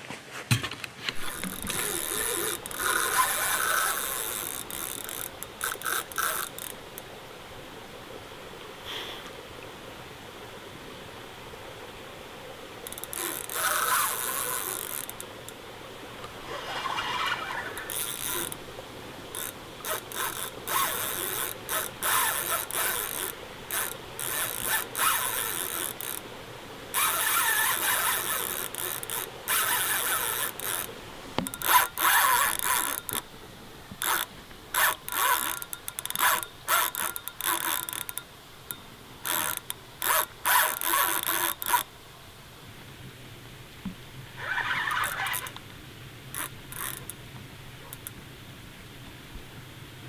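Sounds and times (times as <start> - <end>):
fishing reel drag ratcheting: 1.1 - 7.1, 12.8 - 15.6, 16.2 - 18.6, 19.3 - 26.3, 26.9 - 33.3, 34.0 - 41.9, 44.4 - 45.6, 46.3 - 47.2, 47.9 - 48.2.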